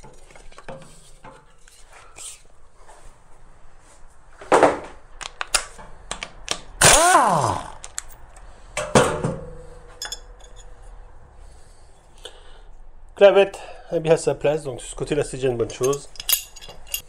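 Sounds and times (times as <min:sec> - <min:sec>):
pneumatic impact wrench: 0:06.8 - 0:07.7
metal clanks: 0:08.8 - 0:10.7, 0:15.7 - 0:17.0.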